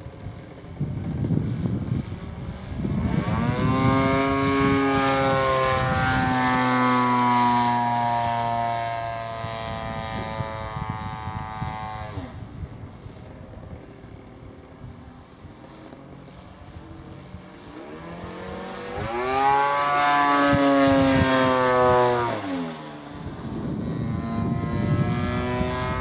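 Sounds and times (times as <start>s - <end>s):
model plane engine at high power: 0.0s - 26.0s.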